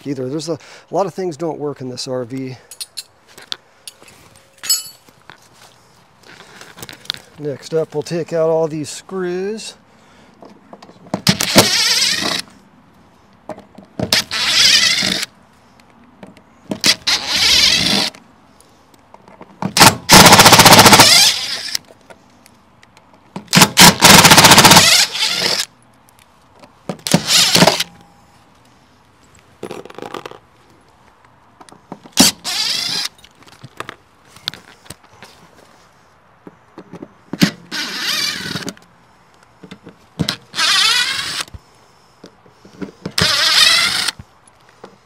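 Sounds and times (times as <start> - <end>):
power driver running in bursts: 19.8 - 21.7, 23.6 - 25.6.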